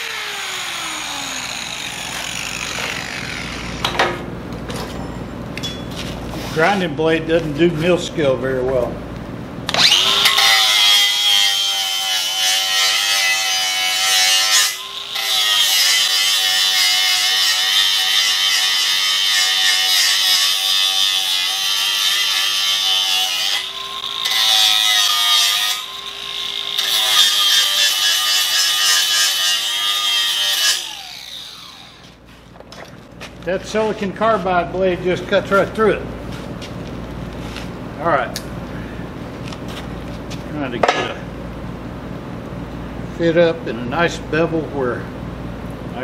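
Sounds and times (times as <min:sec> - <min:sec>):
angle grinder grinding steel: 0:00.0 - 0:03.9, 0:09.7 - 0:32.4.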